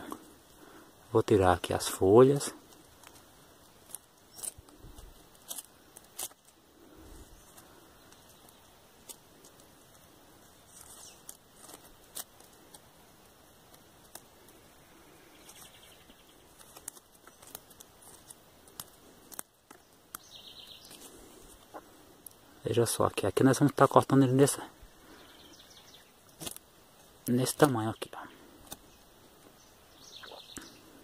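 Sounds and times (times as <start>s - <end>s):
knife stripping leaves off twig: 2.6s - 14.6s, 15.4s - 22.4s, 26.2s - 27.7s, 28.4s - 29.0s.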